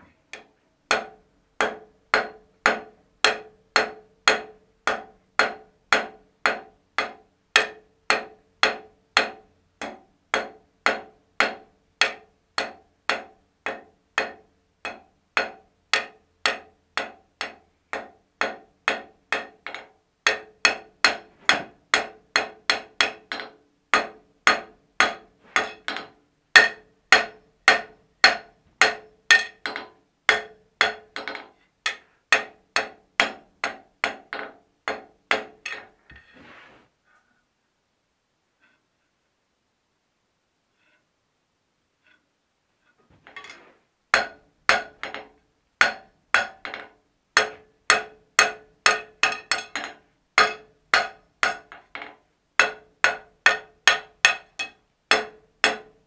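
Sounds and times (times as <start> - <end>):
hammer striking steel on anvil: 0.3 - 36.0, 44.1 - 56.0
anvil ringing: 20.3 - 32.9.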